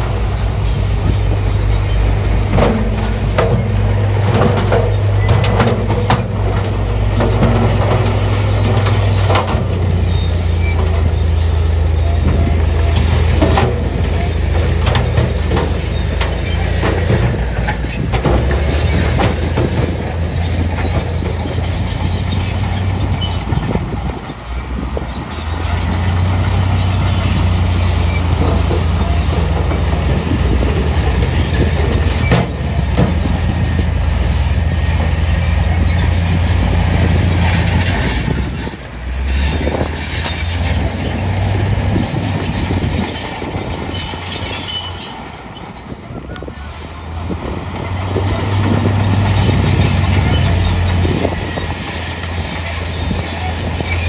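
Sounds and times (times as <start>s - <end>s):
diesel truck engine running: 0.0s - 54.0s.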